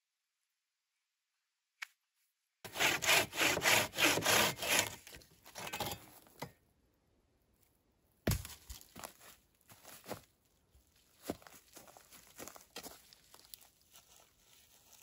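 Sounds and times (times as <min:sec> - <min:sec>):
wood rasping against wood: 0:02.7 - 0:05.0.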